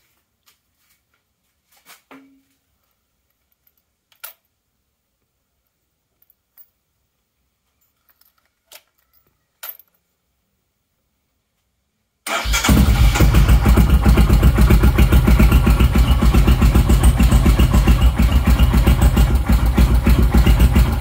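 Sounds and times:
keys jangling: 7.8 - 10.1.

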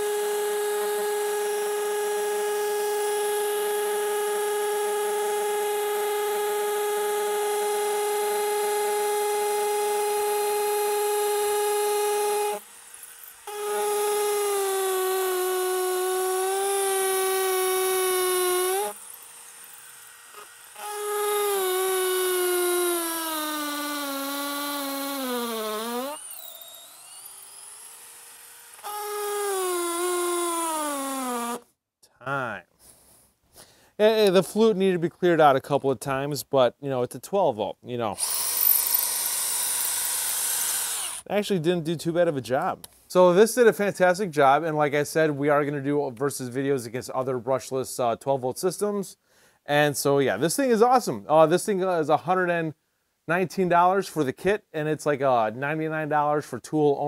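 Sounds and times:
hammer drill boring into concrete: 0.0 - 31.6, 38.2 - 41.3.

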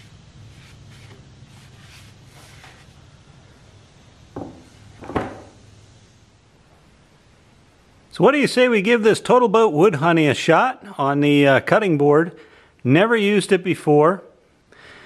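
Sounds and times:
towel wiping wooden board: 0.0 - 3.0
low steady hum: 0.0 - 10.0
wooden knocks: 4.4 - 5.5.

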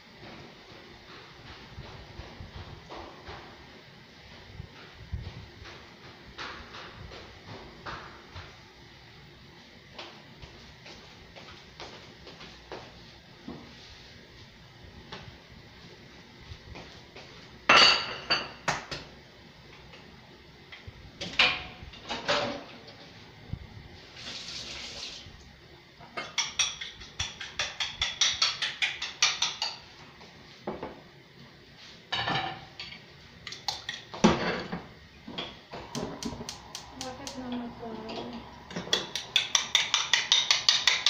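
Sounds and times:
dishes and utensils clattering: 26.0 - 29.8, 32.1 - 35.6, 38.0 - 41.0.

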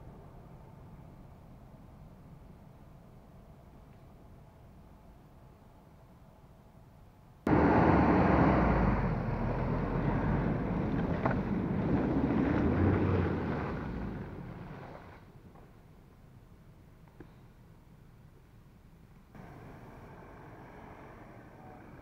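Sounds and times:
truck engine running: 7.5 - 15.1, 19.4 - 22.0
tyres splashing through mud: 7.5 - 15.3.

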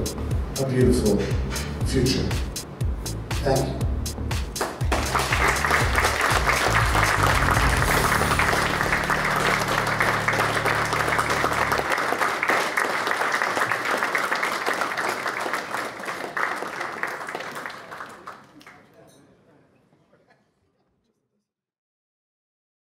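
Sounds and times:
low background music: 0.0 - 12.6
audience applauding: 4.6 - 19.0.

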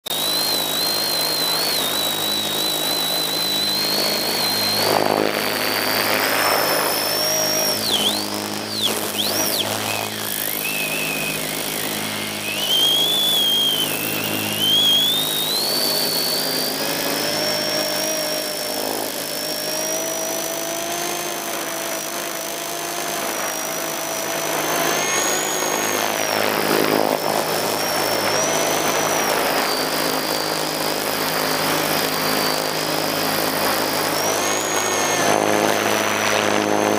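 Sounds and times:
drone propeller whining: 0.0 - 36.9
rush of air noise: 0.1 - 20.4.

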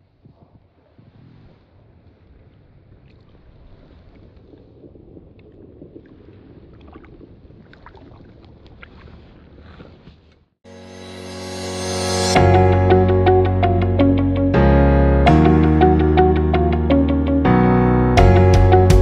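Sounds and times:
water lapping and splashing: 0.2 - 10.6.

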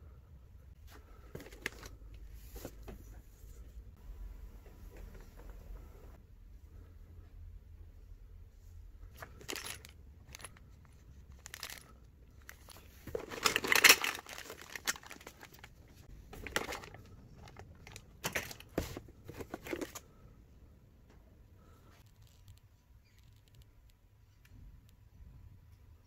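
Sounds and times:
plastic bags crinkling: 11.4 - 18.8
cardboard rustling: 12.4 - 20.1.

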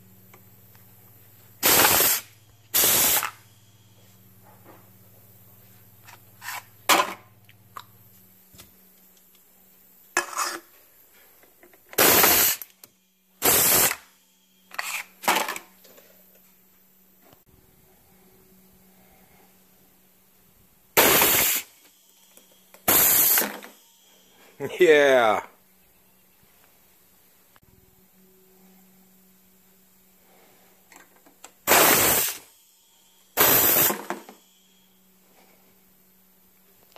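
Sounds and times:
pneumatic air blasts: 1.6 - 3.5, 11.9 - 15.6, 20.9 - 24.5, 31.0 - 35.5.

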